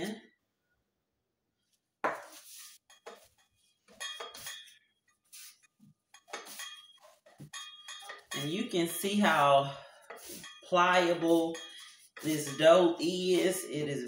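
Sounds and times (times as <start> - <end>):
dough being kneaded on a board: 2.0 - 8.2
metal scraper clinking: 3.9 - 4.8, 6.2 - 8.7, 10.1 - 13.5.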